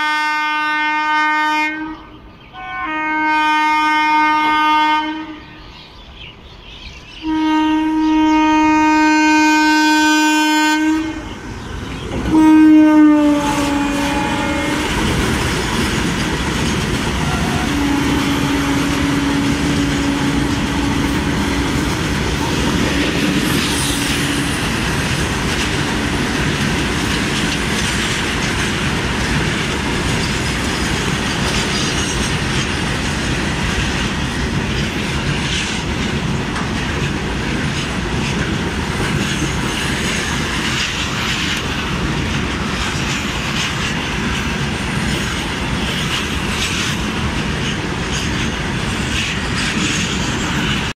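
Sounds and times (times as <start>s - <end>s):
locomotive horn: 0.0s - 5.5s, 7.2s - 11.4s, 12.2s - 15.1s, 17.2s - 22.1s, 22.8s - 24.7s
train wheels clattering over rail joints: 13.5s - 50.9s.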